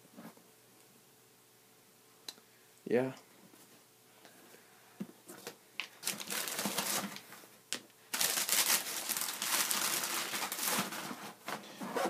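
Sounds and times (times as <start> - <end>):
tissue paper crinkling: 6.0 - 7.2, 8.1 - 11.4.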